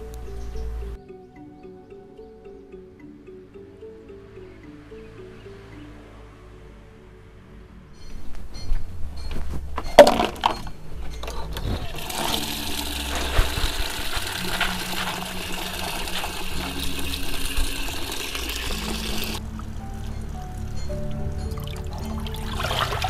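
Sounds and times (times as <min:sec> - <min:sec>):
water running into concrete basin: 0:11.8 - 0:20.6, 0:21.6 - 0:23.0.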